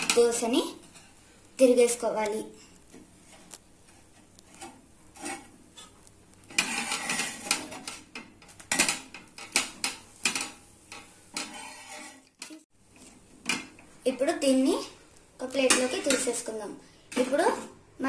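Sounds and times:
metal spatula scraping a griddle: 0:02.6 - 0:13.7.

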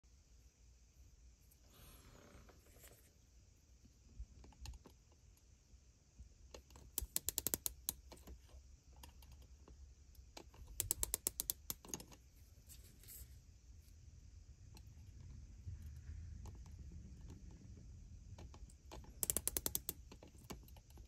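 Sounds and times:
faint handling ticks: 0:06.5 - 0:13.3, 0:18.4 - 0:21.0
micrometer ratchet clicking: 0:06.9 - 0:08.1, 0:10.6 - 0:12.2, 0:18.9 - 0:20.5.

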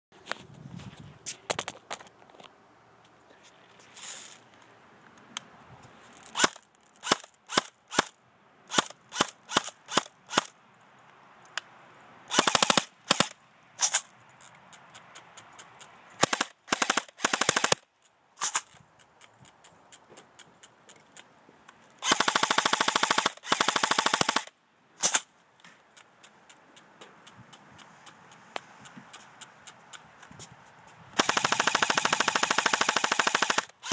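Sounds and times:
electric airsoft gun firing: 0:12.3 - 0:14.0, 0:16.2 - 0:17.8, 0:22.0 - 0:25.3, 0:31.2 - 0:33.9.

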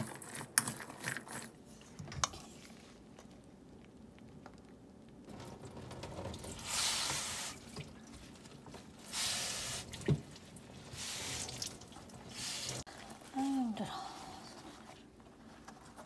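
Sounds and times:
water splattering into a steel sink: 0:09.3 - 0:12.8.

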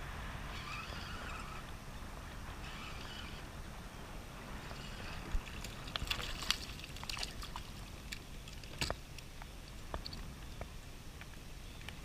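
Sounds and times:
wind rumbling on microphone: 0:00.0 - 0:12.0
water lapping against plastic hull: 0:04.5 - 0:09.3.

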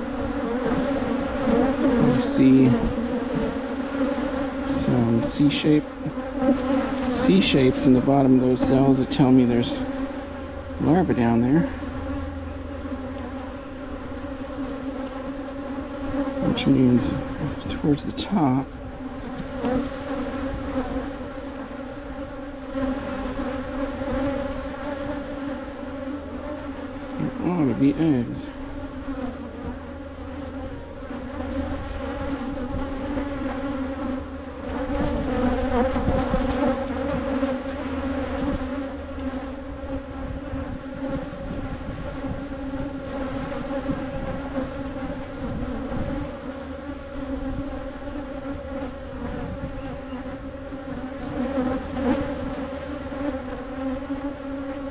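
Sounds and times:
bee buzzing close by: 0:00.0 - 0:54.9
honey bees buzzing: 0:00.0 - 0:54.9.

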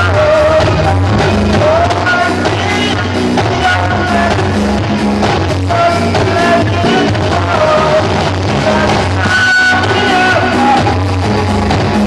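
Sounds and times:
drum kit: 0:00.0 - 0:12.0
electric guitar: 0:00.0 - 0:12.0
live band playing pop: 0:00.0 - 0:12.0
pulsing bass line: 0:00.0 - 0:12.0
people singing: 0:05.7 - 0:12.0.

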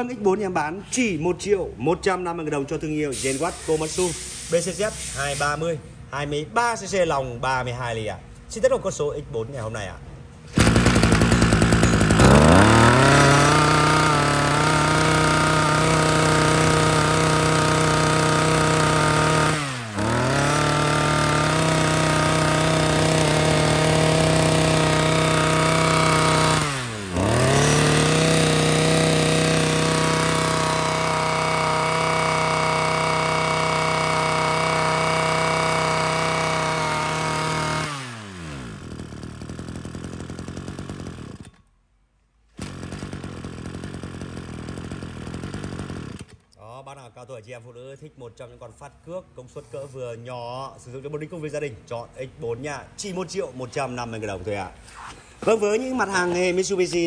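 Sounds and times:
brush cutter engine revving: 0:10.5 - 0:41.6, 0:42.6 - 0:46.5.

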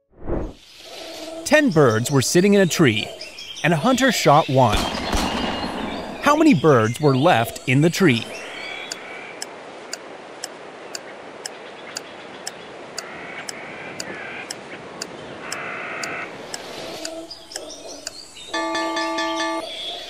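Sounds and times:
countdown timer ticking: 0:14.0 - 0:19.6.

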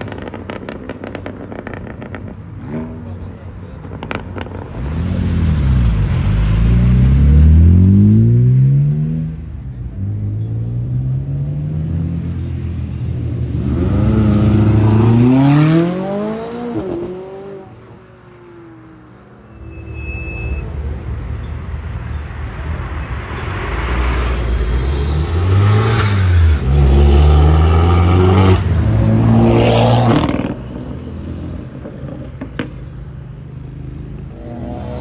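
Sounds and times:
car engine revving: 0:24.7 - 0:30.6.

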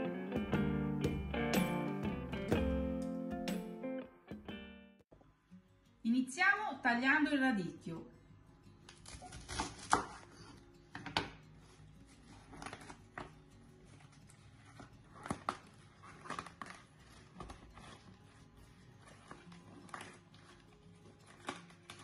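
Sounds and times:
leaves torn apart by hand: 0:08.9 - 0:10.2, 0:15.1 - 0:18.1, 0:19.0 - 0:22.0.

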